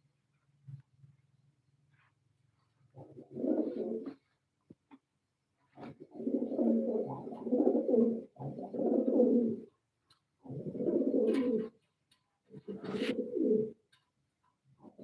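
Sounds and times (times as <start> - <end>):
pigeon cooing: 3.0 - 4.3, 5.8 - 9.7, 10.5 - 11.8, 12.6 - 13.8.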